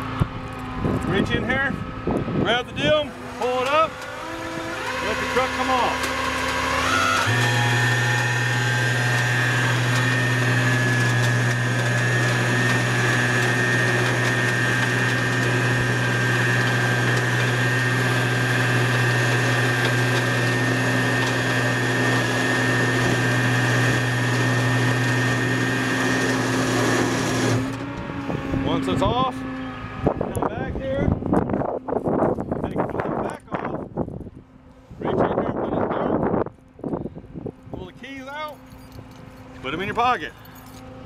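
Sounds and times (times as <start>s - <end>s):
hydraulic winch hum: 0.0s - 30.4s
winch high whine: 0.0s - 34.0s.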